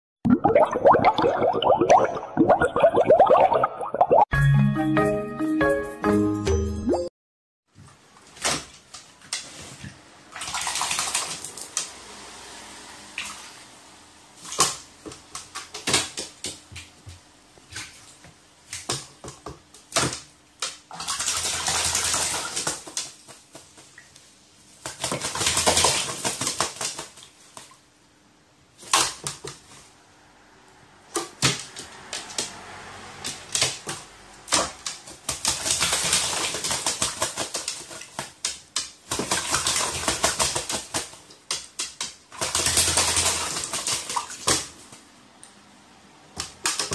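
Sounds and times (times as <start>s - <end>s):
bird splashing in water: 10.3s - 11.8s.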